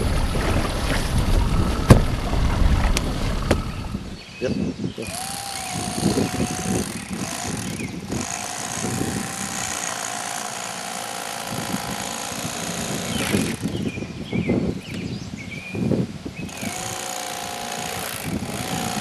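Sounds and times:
electric fillet knife sawing: 5.0 - 13.8, 16.5 - 19.0.

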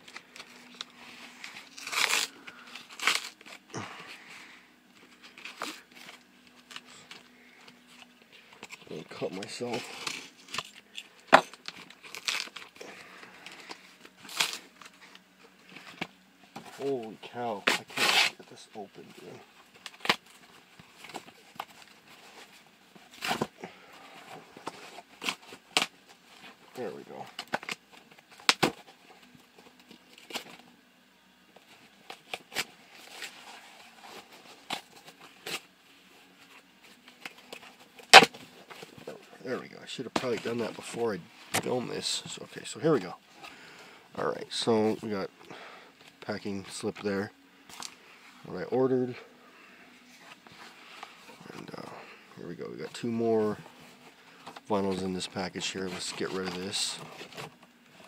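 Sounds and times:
cardboard tearing: 0.1 - 3.6, 11.4 - 14.8, 17.6 - 18.4.

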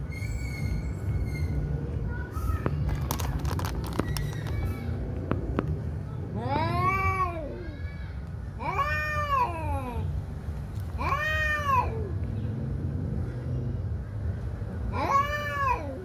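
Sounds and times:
cats yowling: 6.4 - 8.0, 8.6 - 10.0, 11.0 - 12.2, 14.9 - 16.0.

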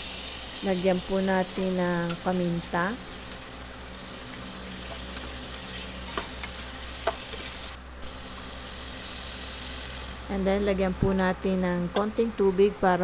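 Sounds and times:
meat sizzling in oil: 0.0 - 10.3.

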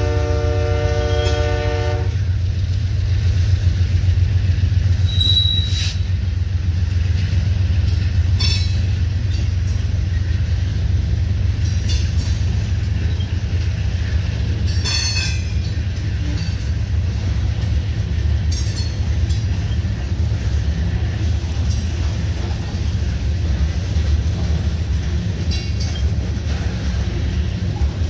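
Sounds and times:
freight train rumbling past: 0.0 - 28.0
wheel squeals: 5.0 - 6.0.

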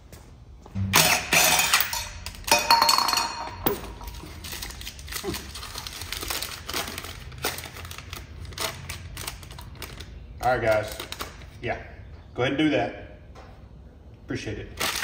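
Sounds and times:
metal tools clanking on concrete: 0.8 - 4.4.

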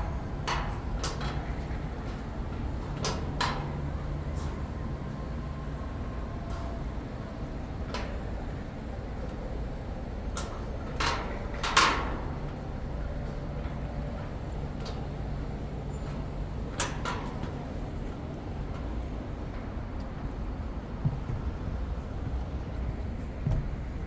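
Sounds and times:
distant traffic rumble: 0.0 - 24.0.

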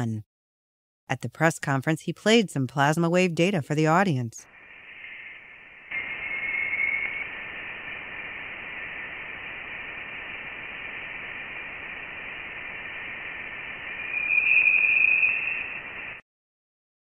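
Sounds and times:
faint electronic tones: 4.4 - 16.2
steady hiss: 4.4 - 16.2
high electronic tone: 13.0 - 16.2.

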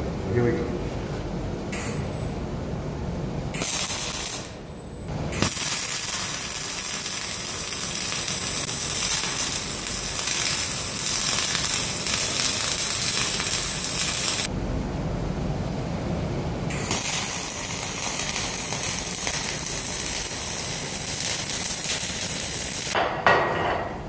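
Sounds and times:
welding arc crackling hiss: 1.7 - 2.4, 3.5 - 14.5, 16.6 - 23.0.

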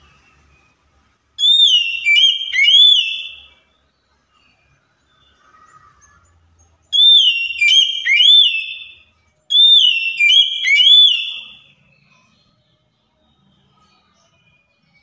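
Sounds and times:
bird singing whistled phrases: 1.4 - 3.7, 6.9 - 12.1.

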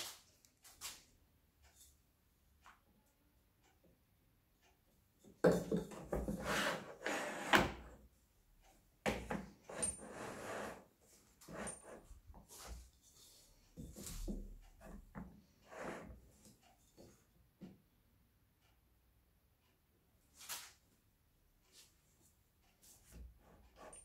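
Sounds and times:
wood sliding against wood: 5.5 - 7.9, 9.7 - 14.4.

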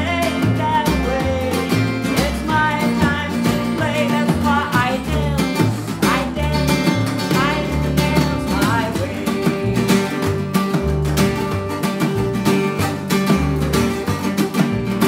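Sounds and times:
woman singing: 0.0 - 10.5
drum beat: 0.0 - 15.0
second guitar: 0.0 - 15.0
strummed acoustic guitar: 0.0 - 15.0
upright bass: 0.0 - 15.0.

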